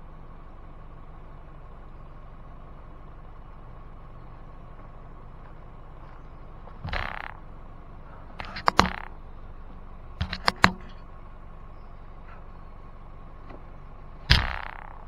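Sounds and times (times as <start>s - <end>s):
vehicle engine running: 0.0s - 15.0s
sharp clunks and knocks: 4.7s - 7.5s, 8.1s - 11.1s, 13.4s - 15.0s.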